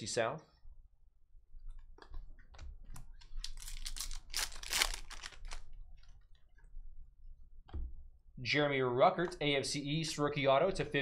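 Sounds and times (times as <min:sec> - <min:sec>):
trading cards clicking: 0:03.0 - 0:05.7
foil wrapper crinkling: 0:03.4 - 0:05.7.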